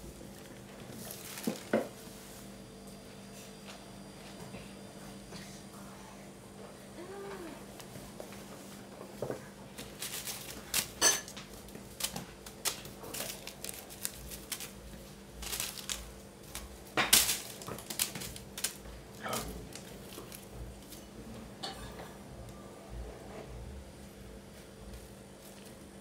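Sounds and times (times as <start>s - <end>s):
plastic bag and wrapper crackling: 0.2s - 1.8s, 9.7s - 21.1s.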